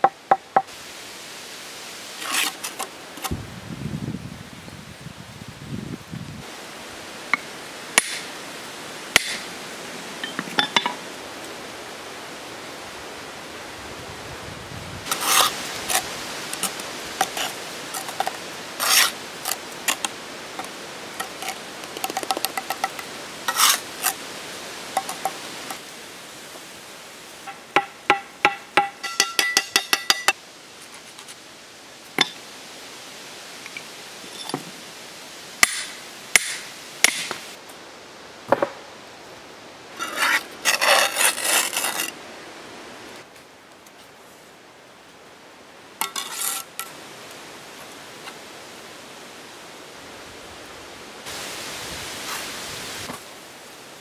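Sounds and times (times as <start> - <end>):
trowel scraping mortar: 2.2 - 3.3, 15.1 - 20.1, 21.2 - 24.2, 40.0 - 42.2, 46.0 - 46.8
trowel clinks on blocks: 27.5 - 30.4.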